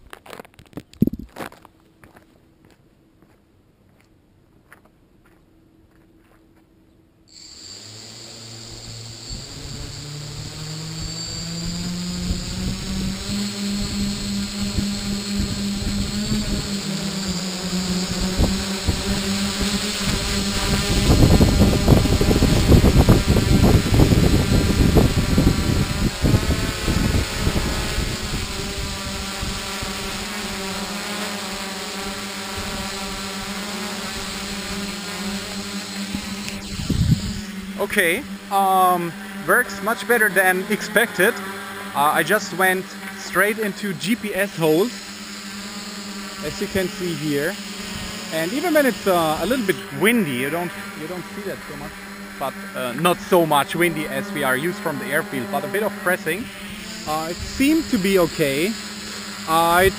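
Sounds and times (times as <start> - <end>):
drone motors humming: 7.3 - 59.9
propeller downdraft rumbling on microphone: 7.9 - 59.9.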